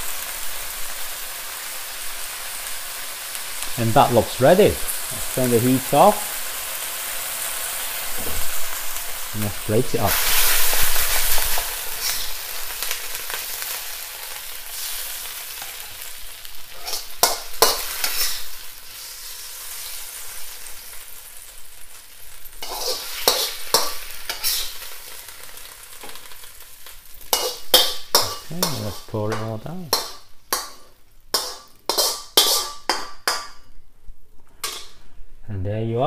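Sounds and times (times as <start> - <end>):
greens sizzling in a wok: 0.0 - 35.2
metal spatula scraping wok: 7.4 - 20.9, 22.5 - 26.4, 27.2 - 33.7, 34.6 - 35.1.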